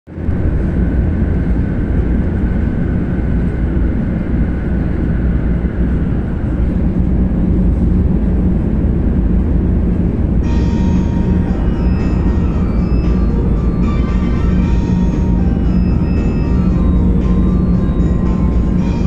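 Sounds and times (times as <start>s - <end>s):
train cabin rumble: 0.1s - 19.0s
faint high whine: 10.2s - 19.0s.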